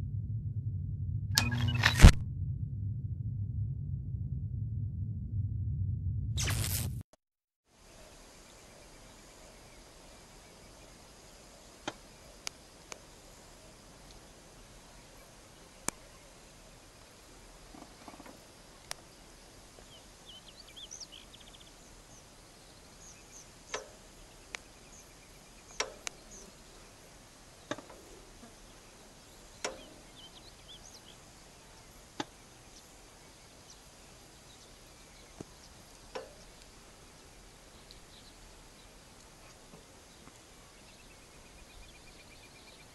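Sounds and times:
steady hiss: 0:07.7 - 0:42.6
faint bird chirps: 0:17.7 - 0:42.9
sharp clicks and knocks: 0:25.7 - 0:26.2.

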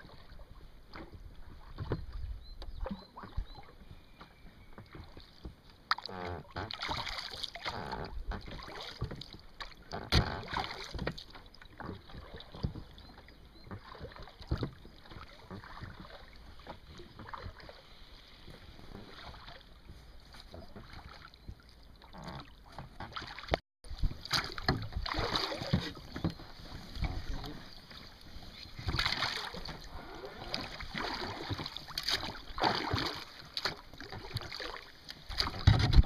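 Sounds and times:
oars splashing: 0:00.0 - 0:36.0
water lapping against boat: 0:00.0 - 0:36.0.

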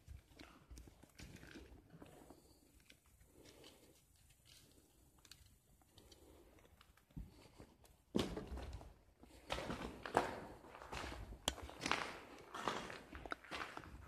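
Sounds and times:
footsteps crunching on debris: 0:08.1 - 0:14.0.

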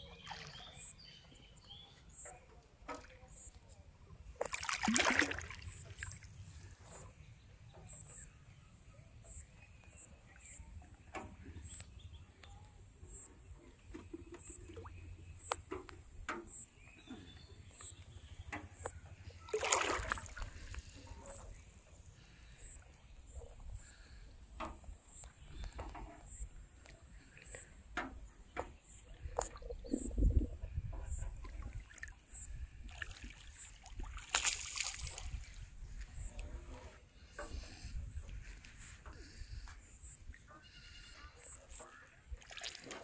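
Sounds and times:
water sloshing: 0:04.2 - 0:07.2, 0:13.8 - 0:43.0
water splashing: 0:04.4 - 0:06.7, 0:19.2 - 0:22.6, 0:29.1 - 0:39.6, 0:41.4 - 0:43.0.

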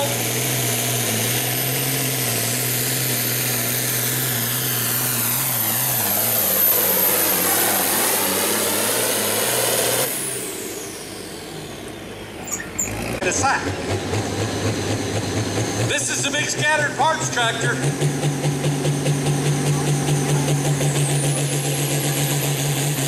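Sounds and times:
tractor engine running under load: 0:00.0 - 0:23.0.

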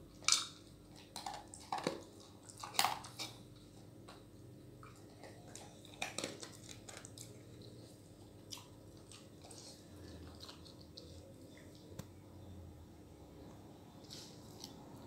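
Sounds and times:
dog licking and eating from bowl: 0:00.0 - 0:12.0.

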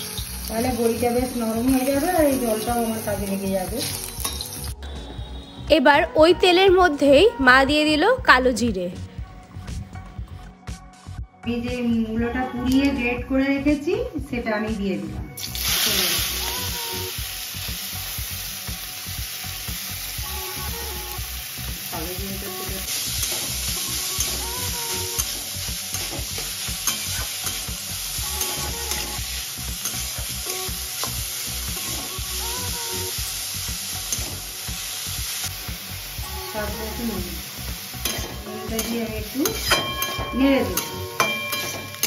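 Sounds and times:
food sizzling in hot oil: 0:00.0 - 0:04.8, 0:15.4 - 0:42.0.

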